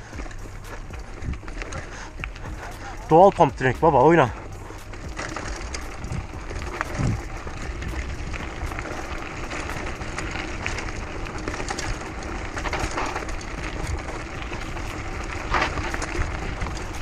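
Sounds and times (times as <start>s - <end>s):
bike rattling and knocking: 0.0s - 17.0s
bike tyres rumbling on rough ground: 0.0s - 17.0s
wind on camera: 5.7s - 9.0s.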